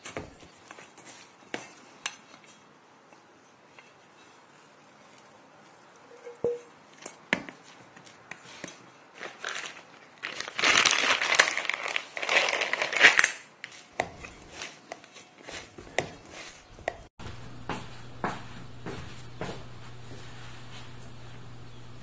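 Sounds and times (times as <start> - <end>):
bowl knocking on wooden table: 6.3 - 6.7
plastic cover crinkling: 9.1 - 13.9.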